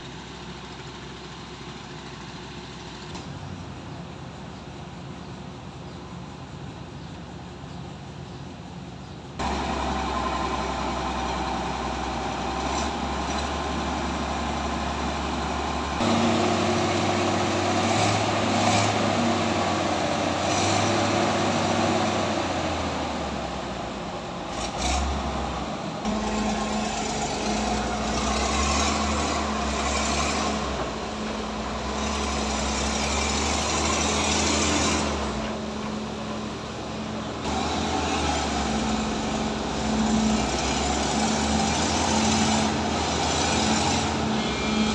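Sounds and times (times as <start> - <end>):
heavy diesel engines under load: 0.0 - 44.9.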